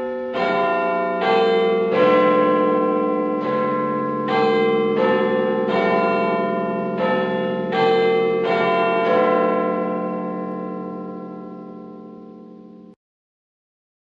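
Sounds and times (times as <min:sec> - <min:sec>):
bells ringing: 0:00.0 - 0:13.0.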